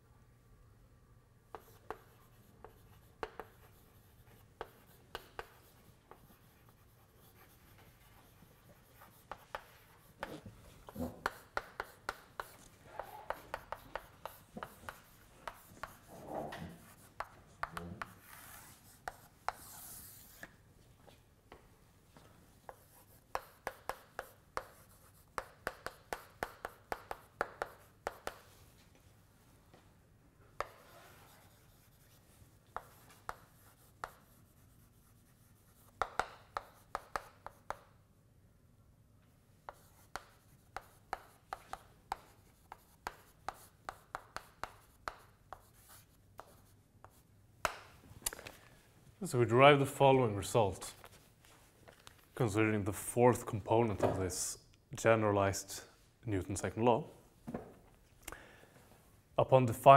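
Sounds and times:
chalk tapping on blackboard: 0:01.5 - 0:20.5, 0:22.7 - 0:28.6, 0:30.6 - 0:38.0, 0:39.6 - 0:47.9
chalk scraping on blackboard: 0:01.6 - 0:20.5, 0:22.7 - 0:28.6, 0:30.6 - 0:37.9, 0:39.7 - 0:47.3.

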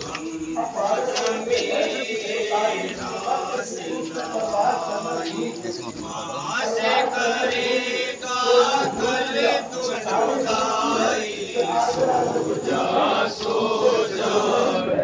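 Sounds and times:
men chanting together: 0:00.0 - 0:15.0.

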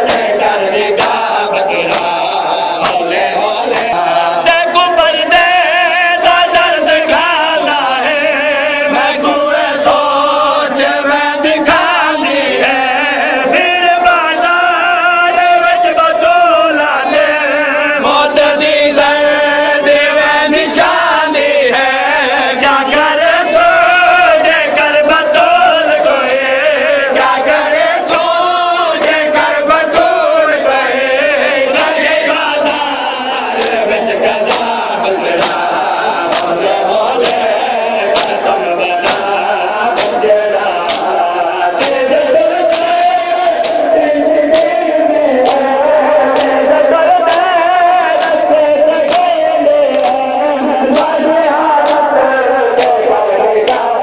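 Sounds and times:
chest-beating slaps: 0:00.0 - 0:04.0, 0:30.8 - 0:51.2, 0:51.8 - 0:54.0
men chanting in unison: 0:00.0 - 0:54.0.

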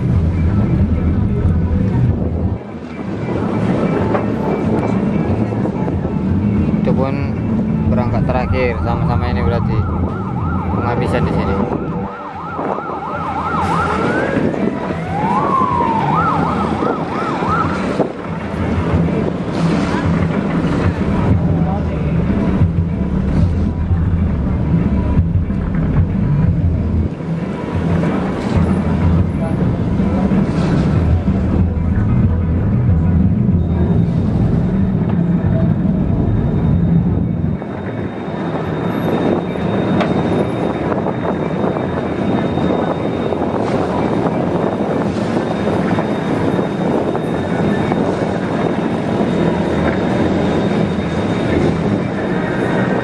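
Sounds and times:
rushing noise: 0:00.0 - 0:53.0
electronic siren warbling: 0:07.9 - 0:18.2
boat engine hum: 0:11.5 - 0:53.0.

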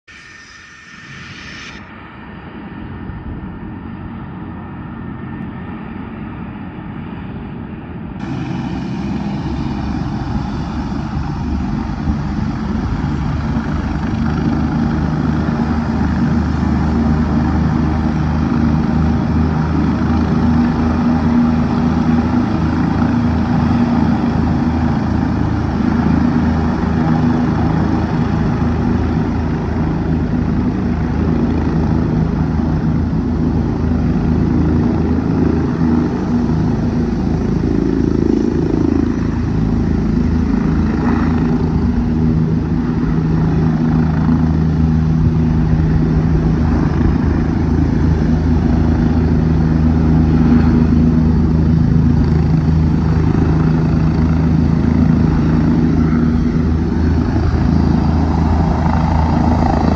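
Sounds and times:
turbine engine whine: 0:00.0 - 0:59.9
helicopter rotor beat: 0:00.1 - 0:59.9
steady low hum: 0:00.1 - 0:59.9.

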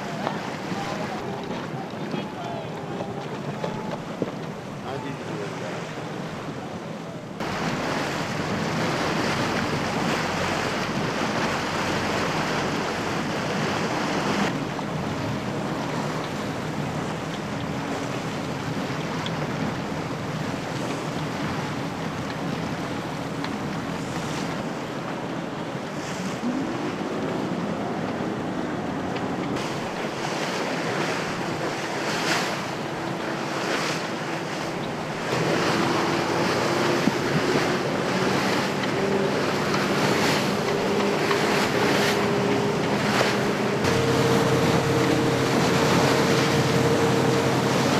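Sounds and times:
choppy water slapping hulls: 0:00.0 - 0:47.9
wind buffeting microphone: 0:07.4 - 0:47.9
faint drone: 0:26.2 - 0:47.9.

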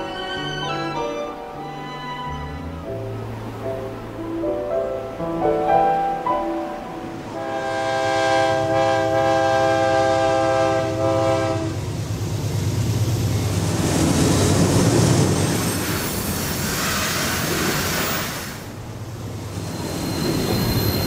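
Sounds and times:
freight train passing: 0:00.0 - 0:21.0
locomotive air horn: 0:07.3 - 0:11.8.

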